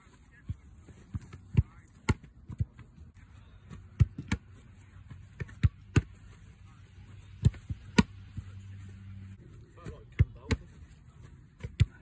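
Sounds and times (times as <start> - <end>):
football kicks and glove thuds: 0.4 - 2.9, 3.6 - 6.4, 7.3 - 8.5, 9.8 - 12.0.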